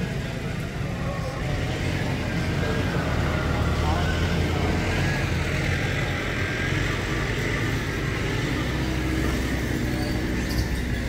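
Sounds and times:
vehicle engine hum: 0.0 - 11.0.

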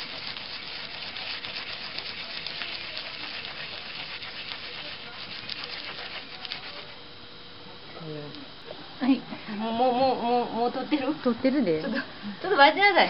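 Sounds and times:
yam grating on metal grater: 0.0 - 7.0.

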